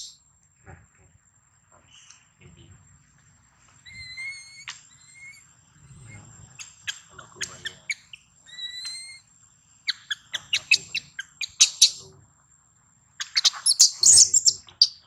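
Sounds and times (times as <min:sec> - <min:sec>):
baby monkey crying: 0:03.8 - 0:05.4, 0:07.4 - 0:09.3, 0:09.9 - 0:12.0, 0:13.2 - 0:15.0
sharp chirps: 0:06.1 - 0:12.1, 0:13.2 - 0:15.0.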